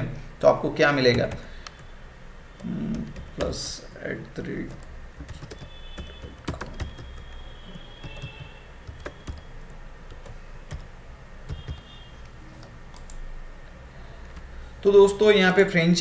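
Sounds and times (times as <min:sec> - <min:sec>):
keyboard typing clicks: 0:02.6 - 0:03.6, 0:04.6 - 0:07.4, 0:08.0 - 0:10.9, 0:11.5 - 0:13.2.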